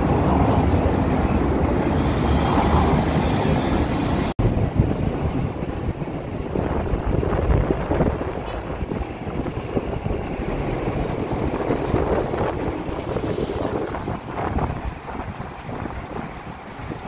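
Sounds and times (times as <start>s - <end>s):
street traffic: 0.0s - 17.0s
wind buffeting microphone: 0.0s - 17.0s.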